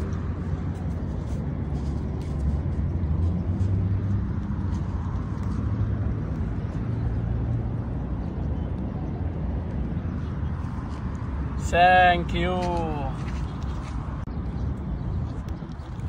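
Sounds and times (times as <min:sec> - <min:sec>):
low outdoor rumble: 0:00.0 - 0:16.0.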